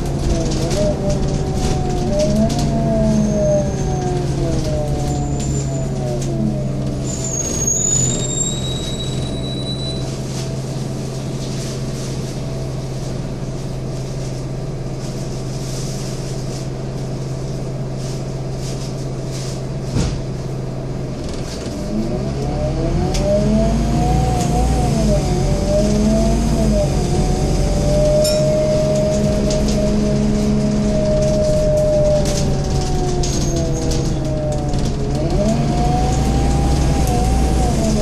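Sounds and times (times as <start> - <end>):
bus diesel engine idling: 0.0 - 22.3, 24.4 - 38.0
brief high squeal: 7.0 - 10.1.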